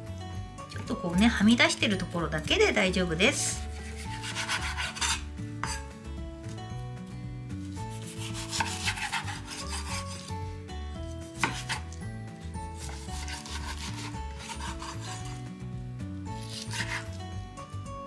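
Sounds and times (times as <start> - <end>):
soft background music: 0.0 - 18.0
knife slicing through raw meat: 3.6 - 5.9, 7.7 - 10.4, 11.0 - 12.0, 12.8 - 15.5, 16.3 - 17.2.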